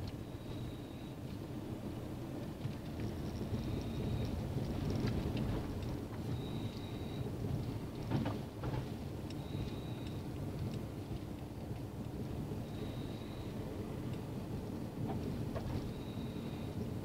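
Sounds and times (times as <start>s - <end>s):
vehicle rumbling slowly: 0.0s - 17.0s
faint high whistle: 9.4s - 10.1s, 12.7s - 13.6s, 15.9s - 16.7s.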